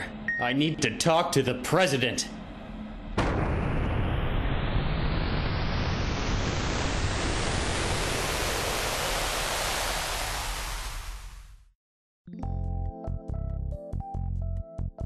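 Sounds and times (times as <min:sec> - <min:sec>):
loud hiss of noise: 0:04.0 - 0:11.4.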